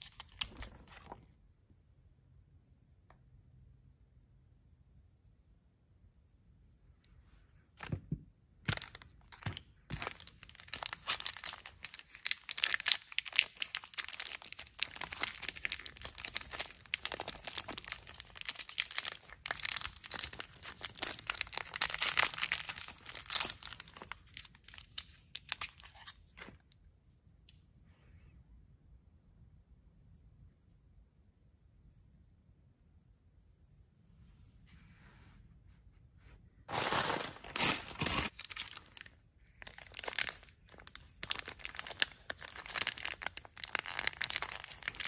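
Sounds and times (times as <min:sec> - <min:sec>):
plastic wrapper crinkling: 0:08.6 - 0:26.6, 0:36.7 - 0:45.0.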